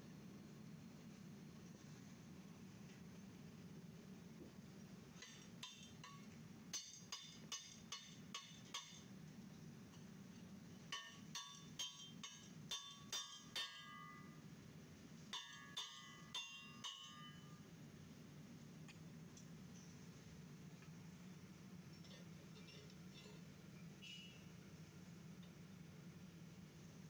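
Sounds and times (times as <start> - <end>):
hammer tapping on metal: 5.2 - 9.1, 10.9 - 14.2, 15.4 - 17.5.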